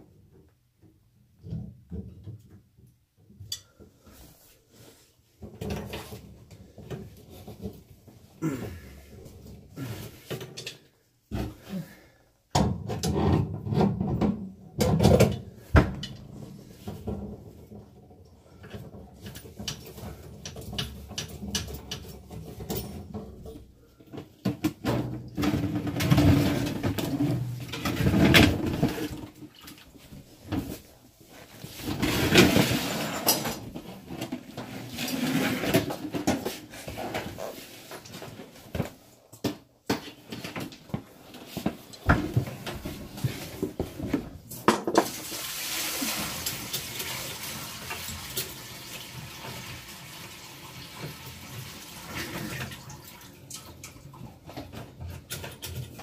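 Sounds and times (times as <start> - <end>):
hiss of running water: 45.1 - 52.4
water splashing and draining: 45.1 - 54.0.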